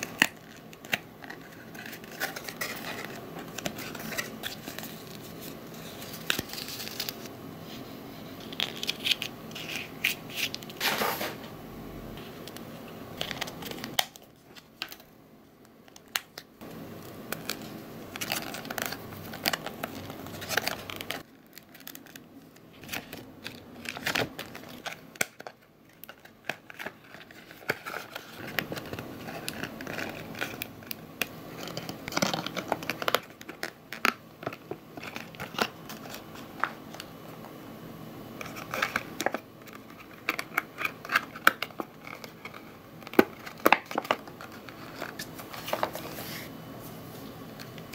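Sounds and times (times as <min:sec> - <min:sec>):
cardstock crinkling and rubbing: 0:00.0 - 0:07.3, 0:17.0 - 0:37.2, 0:38.4 - 0:46.5.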